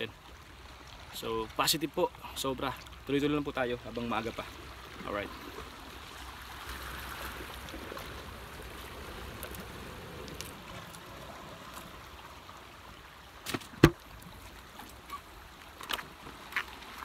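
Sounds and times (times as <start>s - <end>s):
water washing and trickling: 0.0s - 17.0s
sharp knocks: 13.5s - 14.0s.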